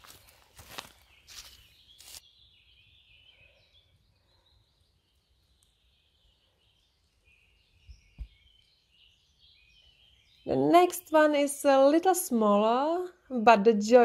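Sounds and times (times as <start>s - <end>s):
rustle of leaf litter: 0.0s - 2.3s
faint high chirping: 0.0s - 10.8s.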